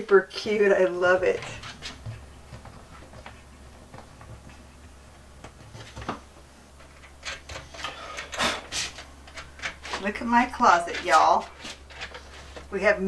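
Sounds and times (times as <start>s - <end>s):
sharp clicks and knocks: 5.4s - 12.2s.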